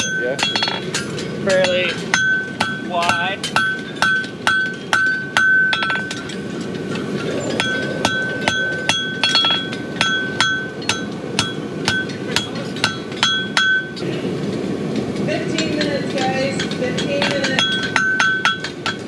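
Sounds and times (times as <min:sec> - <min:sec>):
hammer ringing on anvil: 0:00.0 - 0:06.3, 0:07.6 - 0:14.0, 0:16.6 - 0:19.0.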